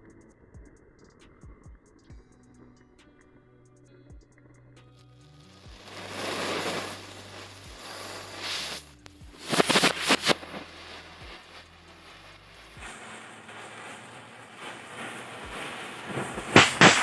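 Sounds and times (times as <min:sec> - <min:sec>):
matchsticks burning hiss: 0:05.3 - 0:17.0
firecrackers cracking: 0:05.4 - 0:17.0
firework fountain hissing: 0:05.4 - 0:17.0.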